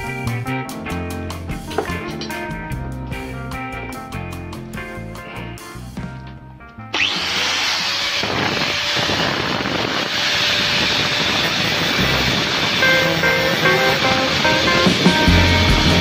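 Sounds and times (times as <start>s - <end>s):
music: 0.0s - 7.0s, 11.8s - 16.0s
power tool grinding: 6.9s - 15.1s.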